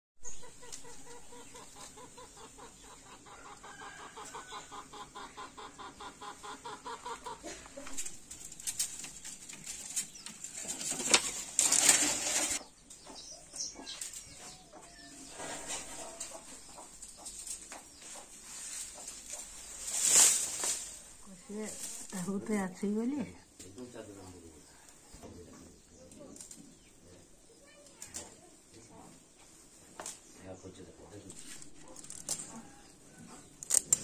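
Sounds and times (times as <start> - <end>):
hen clucking: 0.2 - 8.5, 10.1 - 26.0
twigs rustling and scraping: 7.5 - 12.7, 13.8 - 22.9, 26.0 - 26.8, 31.1 - 34.0.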